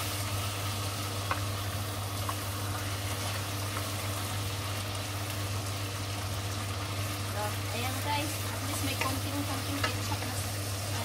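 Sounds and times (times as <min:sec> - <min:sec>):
meat and onions sizzling in pan: 0:00.0 - 0:11.0.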